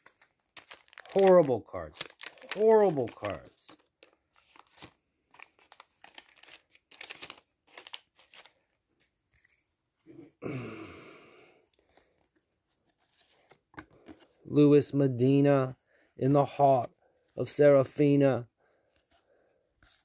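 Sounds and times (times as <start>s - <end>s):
paper wrapper crinkling and tearing: 0.0s - 9.6s
trading cards handled: 0.0s - 10.1s, 11.6s - 14.5s.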